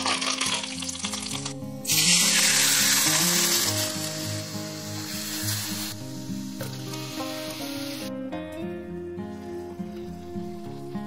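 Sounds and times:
sizzling in hot oil: 0.0 - 8.1
background music: 0.0 - 11.0.

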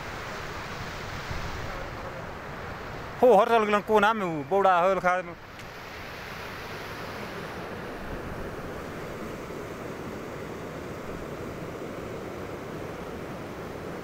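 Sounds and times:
meltwater rushing: 0.0 - 14.0.

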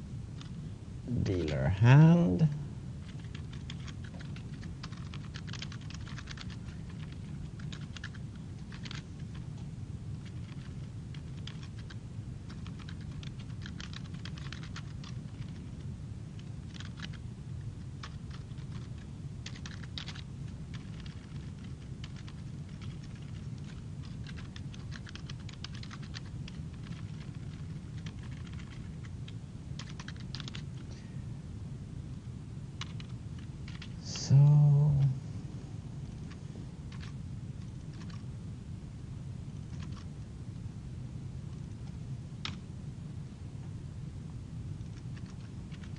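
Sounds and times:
steady low hum: 0.0 - 45.9
computer keyboard typing: 3.0 - 9.5, 10.2 - 15.8, 16.4 - 17.2, 18.0 - 30.8, 32.8 - 34.0, 36.9 - 38.2, 39.7 - 40.1, 44.8 - 45.9.

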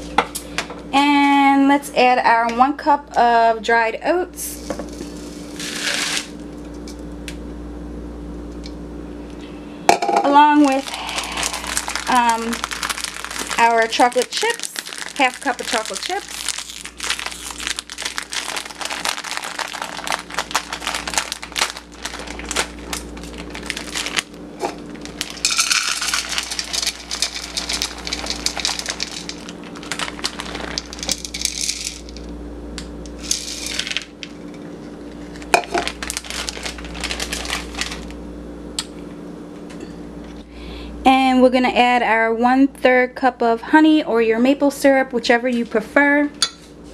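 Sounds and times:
chocolate chips pattering into bowl: 4.6 - 6.3, 10.6 - 32.3, 33.1 - 34.4, 35.2 - 38.1
bag rustling: 10.6 - 32.1, 35.2 - 38.1.

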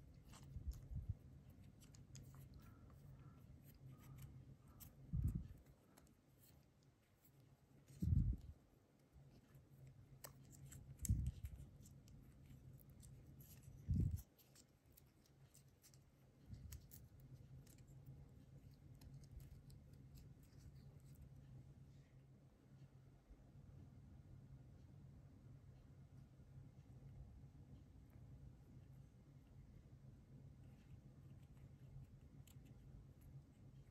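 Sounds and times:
tape unwinding clicks and rustles: 10.1 - 18.0.

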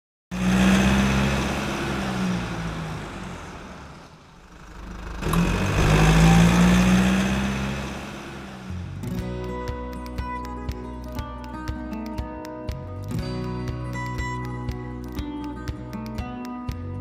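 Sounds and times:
car engine revving: 0.3 - 9.2.

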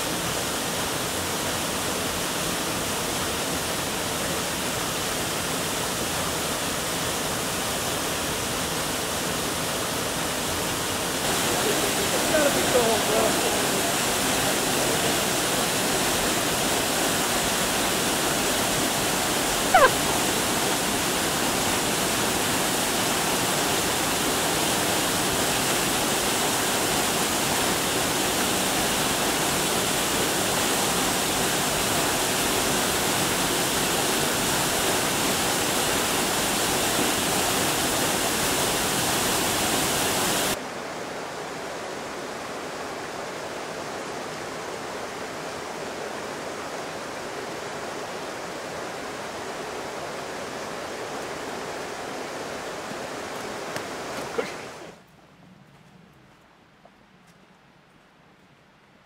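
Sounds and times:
rocky stream: 0.0 - 55.1
waterfall pouring: 11.2 - 40.6.

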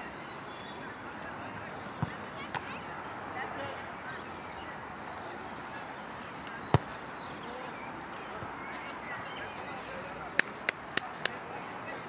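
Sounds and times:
football kick thud: 2.0 - 2.7, 6.7 - 7.0.

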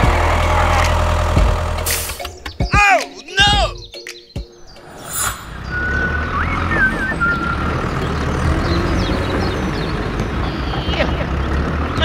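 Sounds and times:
vehicle engine rumbling: 0.0 - 2.6, 4.5 - 12.0
whistle-like tones and glides: 4.6 - 8.2.

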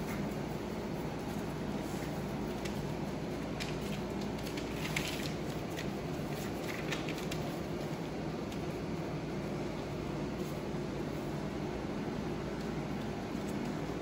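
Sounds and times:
paws rustling newspaper: 0.0 - 8.9
steady machine hum: 0.0 - 14.0.

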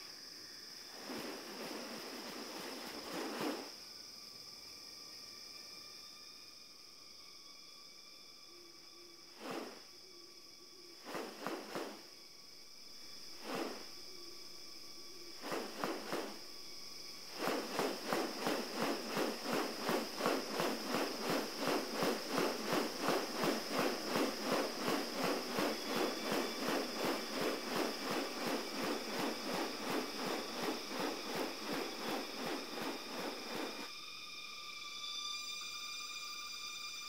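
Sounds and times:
high insect whine: 0.0 - 37.0
bird wing feathers swishing: 0.8 - 3.8, 9.4 - 9.8, 11.0 - 12.1, 13.4 - 14.0, 15.3 - 33.9.

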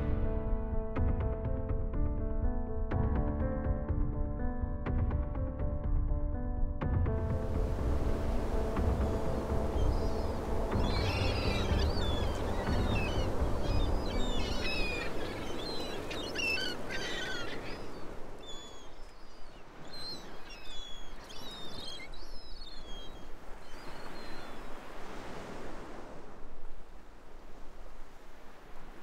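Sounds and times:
soft surf wash: 7.2 - 29.0
birds chirping: 7.6 - 25.0.

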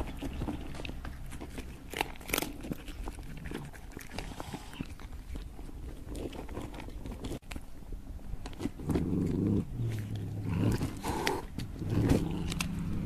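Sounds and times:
chewing clicks: 0.0 - 7.7, 8.4 - 13.0
cat growling low: 8.8 - 13.0.

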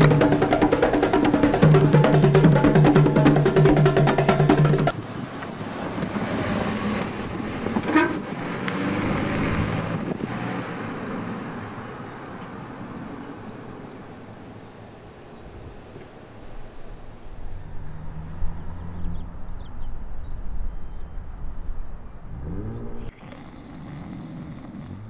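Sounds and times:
drum music: 0.0 - 5.0
car passing by: 4.9 - 14.5, 17.4 - 23.1.

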